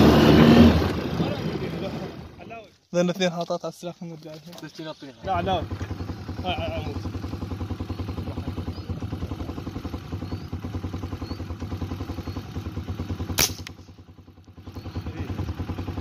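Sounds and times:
engine idling: 0.0 - 3.1, 4.2 - 16.0
air rifle shot: 13.3 - 13.9.

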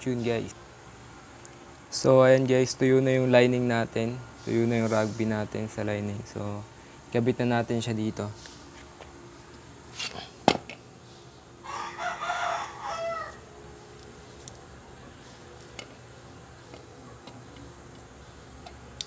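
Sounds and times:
rooster crowing: 11.6 - 13.6.

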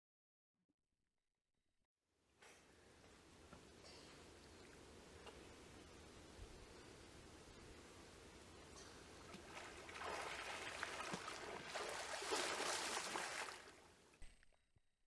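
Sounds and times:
water splashing and sloshing: 9.1 - 13.9.

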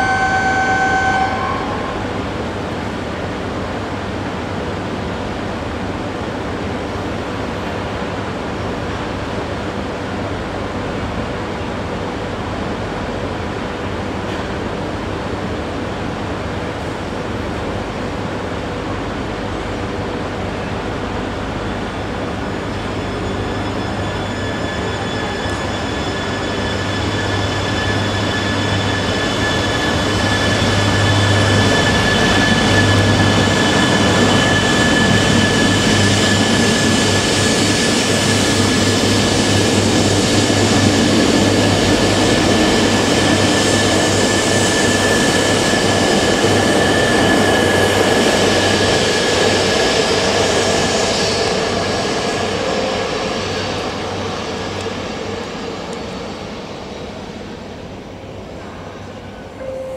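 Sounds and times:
high-speed train passing: 0.0 - 59.9.

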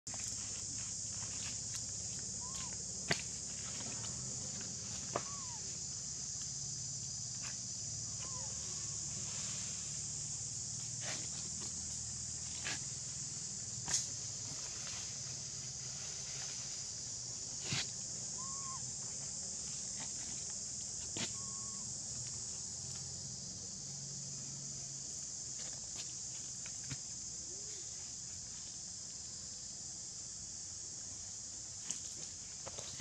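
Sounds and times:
high-pitched insect drone: 0.1 - 29.9
faint chirps: 2.4 - 2.8, 4.9 - 5.8, 8.0 - 9.8, 18.3 - 18.9, 21.2 - 21.9.

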